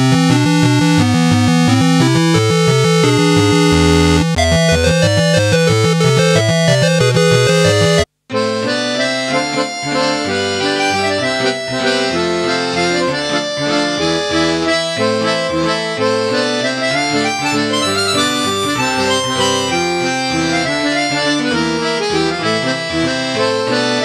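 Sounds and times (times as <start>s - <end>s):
synth bass notes: 0.0s - 8.1s
synthesizer chords: 0.0s - 8.1s, 17.0s - 21.2s.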